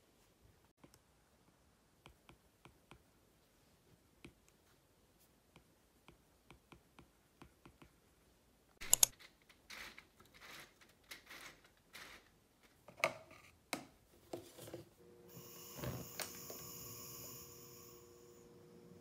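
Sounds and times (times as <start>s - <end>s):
rustling and scraping: 9.1s - 15.0s.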